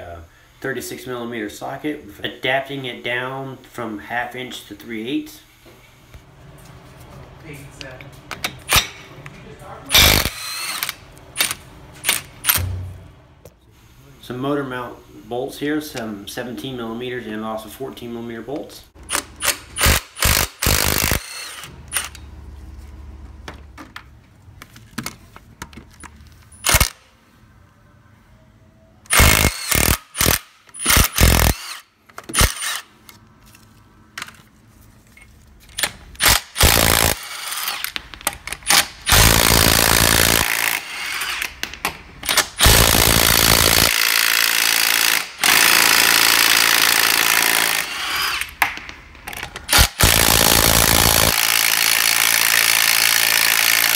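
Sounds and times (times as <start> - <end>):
cordless impact wrench hammering: 9.9 - 12.9, 19.0 - 22.2, 29.1 - 32.8, 35.8 - 53.9.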